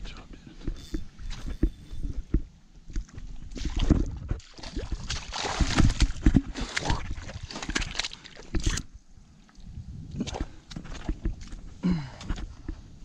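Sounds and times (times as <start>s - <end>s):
fish splashing in shallow water: 3.1s - 9.0s.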